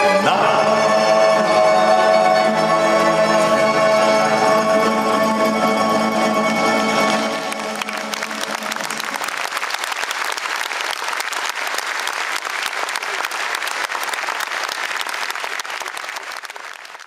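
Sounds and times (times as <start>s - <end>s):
audience applauding: 6.5s - 17.0s.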